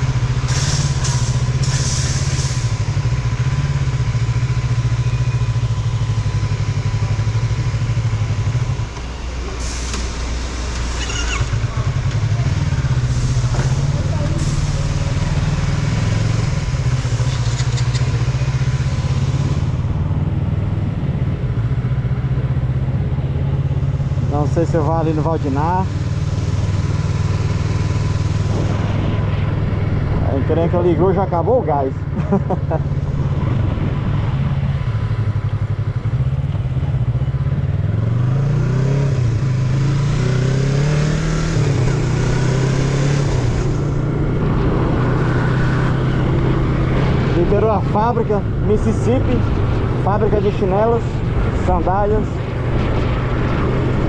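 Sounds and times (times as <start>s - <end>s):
motorcycle engine running: 0.0s - 9.5s, 11.0s - 54.0s
wind rush on microphone: 27.4s - 32.2s, 32.9s - 35.3s, 43.2s - 54.0s.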